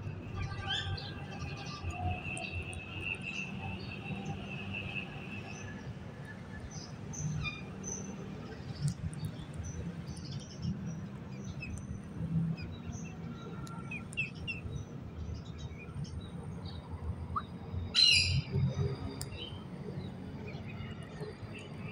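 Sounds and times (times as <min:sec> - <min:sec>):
birds chirping: 0:06.5 - 0:21.9.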